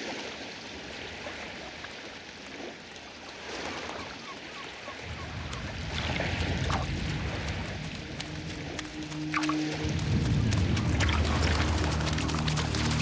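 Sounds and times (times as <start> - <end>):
water washing over sandy shore: 0.0 - 13.0
wind: 0.0 - 13.0
low rumble: 5.2 - 13.0.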